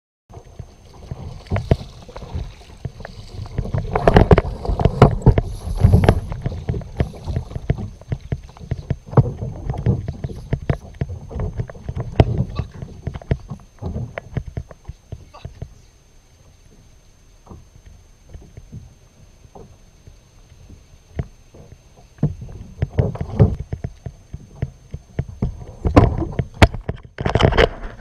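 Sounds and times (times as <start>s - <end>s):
water slapping kayak hull: 0.3s - 28.0s
low rumble: 0.4s - 18.2s.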